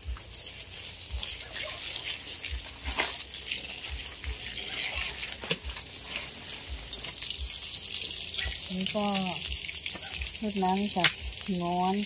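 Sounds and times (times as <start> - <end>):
garden hose spraying water: 0.0 - 12.0.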